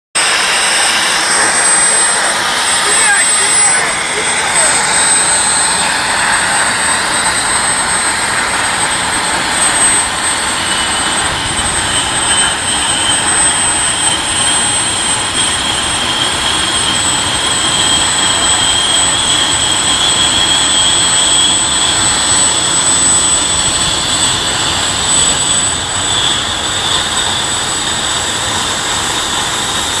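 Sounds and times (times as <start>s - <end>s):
rising whistle: 0.2s - 28.2s.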